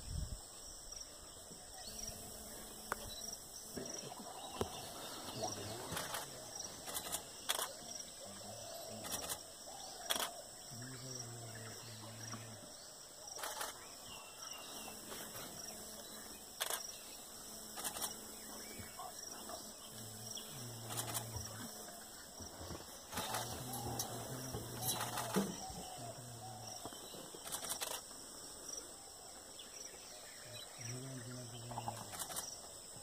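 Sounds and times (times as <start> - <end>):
insects chirring: 0.0 - 33.0
camera shutter clicks: 10.0 - 10.4, 13.4 - 13.8, 16.6 - 16.9, 17.8 - 18.2, 20.9 - 21.3, 23.1 - 23.5, 24.9 - 25.5, 27.4 - 28.0, 32.1 - 32.5.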